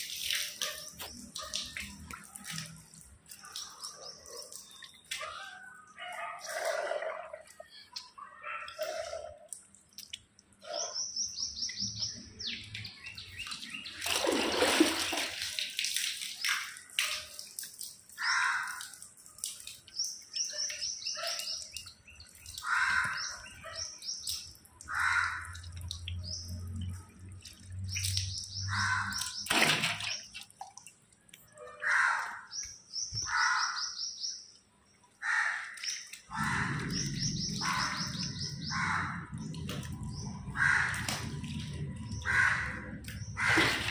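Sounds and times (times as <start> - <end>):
birds trilling chirps: 0.2 - 15.5, 16.2 - 30.5, 31.5 - 43.9.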